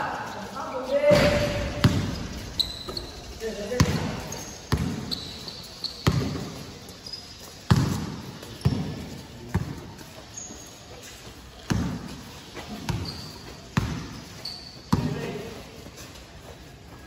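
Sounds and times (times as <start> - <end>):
faint high squeaks: 0.3 - 9.3, 12.6 - 15.2
basketball bouncing in a gym: 1.1 - 10.1, 11.6 - 15.6.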